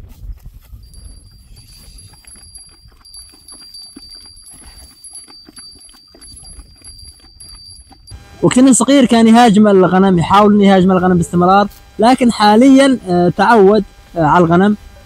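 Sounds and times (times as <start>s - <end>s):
wind rumbling on microphone: 0.0s - 3.3s
high-pitched whine: 8.1s - 15.0s.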